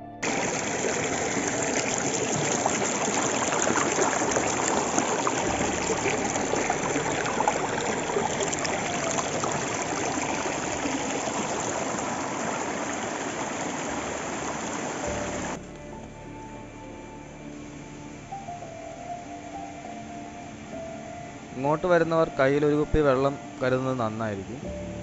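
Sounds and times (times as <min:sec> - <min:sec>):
stream water rushing over boulders: 0:00.0 - 0:15.6.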